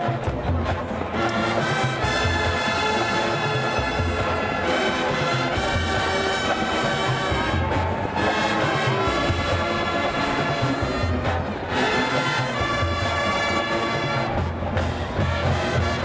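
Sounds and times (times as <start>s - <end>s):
brass section holding chords: 1.1s - 16.0s
bass drums beating: 5.5s - 11.7s.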